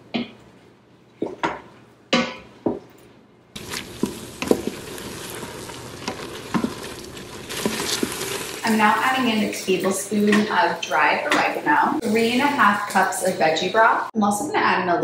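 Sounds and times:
wooden spoon scraping a pot: 0:03.6 - 0:09.3
vegetables sizzling: 0:03.6 - 0:14.1.

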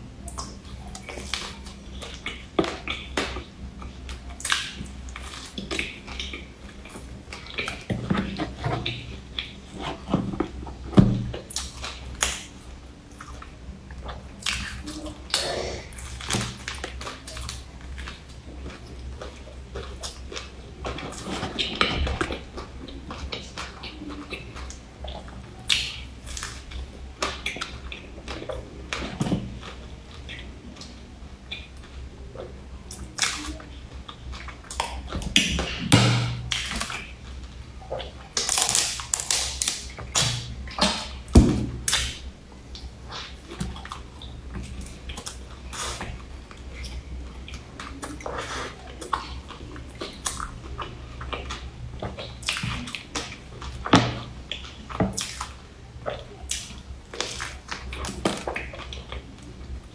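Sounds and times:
steady low hum: 0:00.0 - 0:59.9
clicky mouth chewing sounds: 0:13.1 - 0:35.9.

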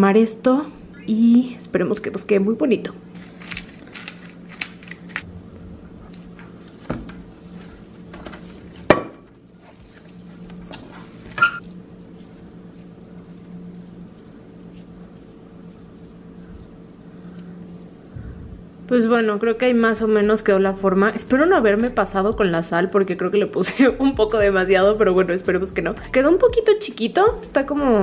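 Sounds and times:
steady low hum: 0:00.0 - 0:28.0
hands squishing ground meat: 0:09.4 - 0:18.8.

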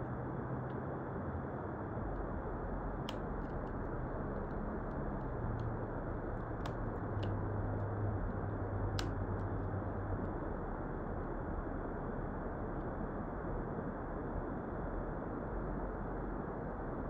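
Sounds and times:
faint low hum: 0:00.0 - 0:17.0
sharp clicks: 0:02.9 - 0:09.6.

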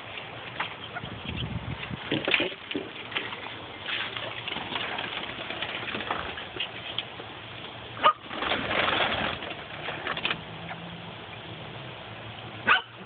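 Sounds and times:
rustling: 0:01.8 - 0:07.1, 0:08.2 - 0:10.4.

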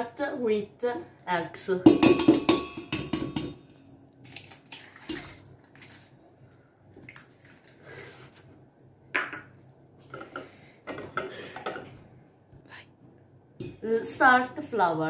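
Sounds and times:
eggs cracking on a bowl: 0:04.2 - 0:06.2, 0:06.9 - 0:07.8.

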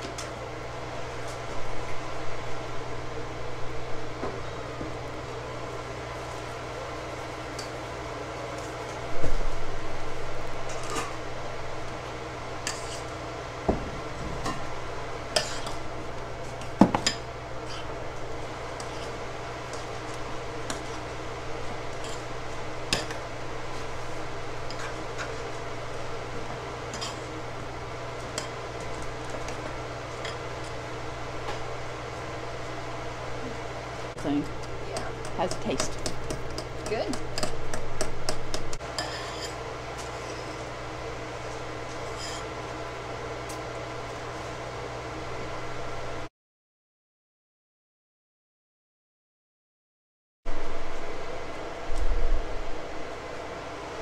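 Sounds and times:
metal spoon scraping glass bowl: 0:38.9 - 0:40.6.

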